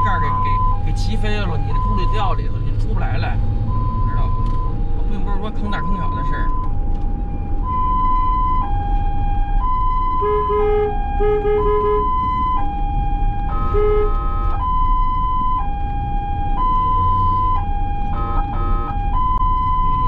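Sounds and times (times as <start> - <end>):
ambulance siren wailing: 0.0 - 20.0
road rumble: 0.0 - 20.0
horn beeps: 10.0 - 12.6, 13.5 - 14.8, 18.2 - 20.0
horn blast: 10.2 - 12.2, 13.5 - 14.4.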